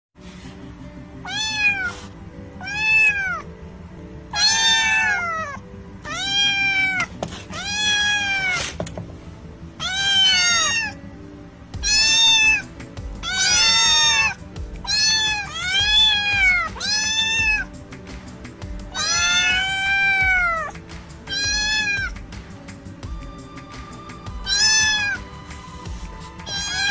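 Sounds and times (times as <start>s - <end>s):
background music: 0.2s - 26.9s
kitten meowing: 1.2s - 3.5s, 4.3s - 8.8s, 9.8s - 11.0s, 11.8s - 17.8s, 18.8s - 22.2s, 24.3s - 25.4s, 26.4s - 26.9s.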